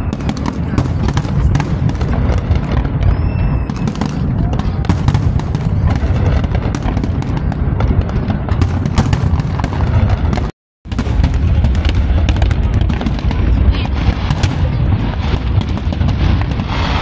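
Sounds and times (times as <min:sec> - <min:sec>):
fireworks booming: 0:00.0 - 0:17.0
fireworks crackling pops: 0:00.0 - 0:17.0.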